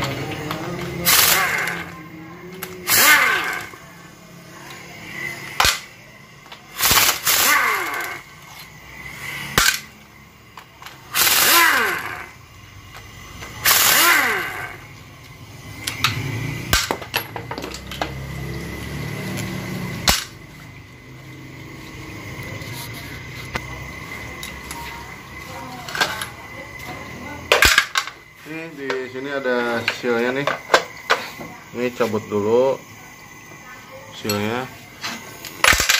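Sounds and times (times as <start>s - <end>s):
impact wrench spinning: 0.0s - 21.3s, 27.5s - 31.2s, 35.1s - 35.9s.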